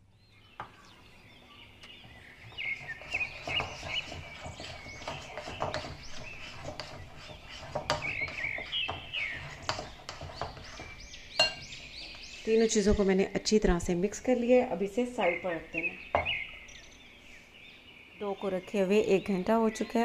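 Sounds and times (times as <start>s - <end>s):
utensil scraping ceramic bowl: 2.6s - 11.9s
high chirping: 10.4s - 12.8s.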